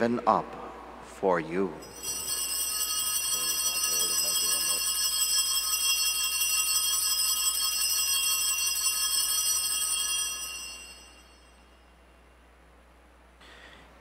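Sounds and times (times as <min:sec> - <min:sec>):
altar bells jingling: 0:01.8 - 0:11.9.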